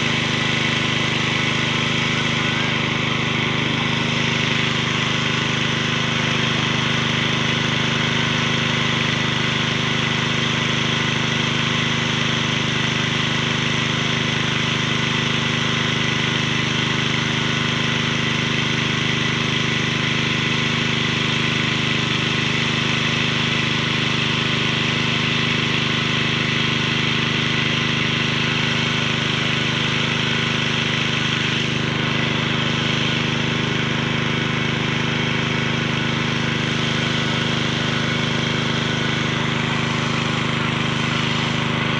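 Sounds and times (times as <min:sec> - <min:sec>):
water pump engine running: 0:00.0 - 0:41.9.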